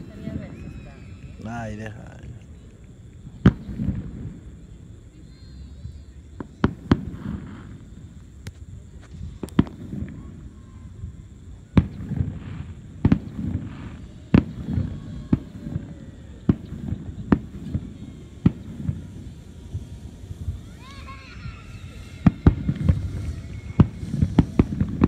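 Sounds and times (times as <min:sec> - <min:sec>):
fireworks bangs: 0:00.0 - 0:25.0
low rolling rumble: 0:07.1 - 0:25.0.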